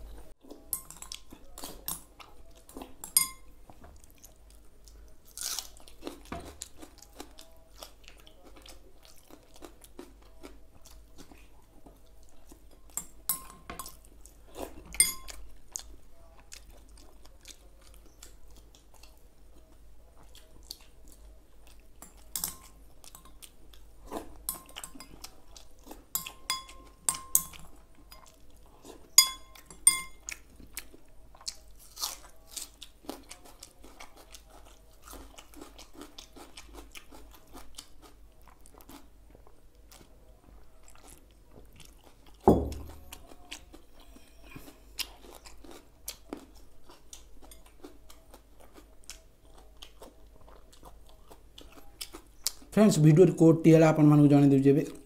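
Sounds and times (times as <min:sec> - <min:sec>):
chewing and crunching food: 0:00.0 - 0:53.3
spoon clinking glass bowl: 0:00.7 - 0:01.2, 0:03.0 - 0:03.5, 0:13.0 - 0:14.0, 0:15.0 - 0:15.4, 0:22.0 - 0:23.4, 0:24.5 - 0:25.2, 0:26.1 - 0:28.3, 0:29.2 - 0:30.2
heavy thump: 0:42.5 - 0:43.0.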